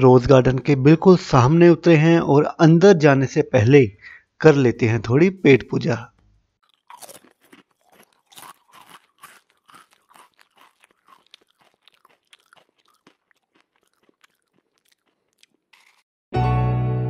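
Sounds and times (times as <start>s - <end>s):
crunchy food being chewed: 6.6s - 16.1s.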